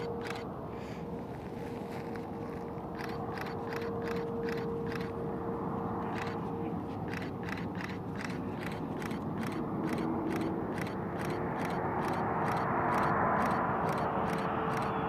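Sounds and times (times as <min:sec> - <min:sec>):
regular ticking: 0:00.0 - 0:00.5, 0:03.0 - 0:05.1, 0:07.1 - 0:15.0
jet engine whine and rush: 0:00.0 - 0:15.0.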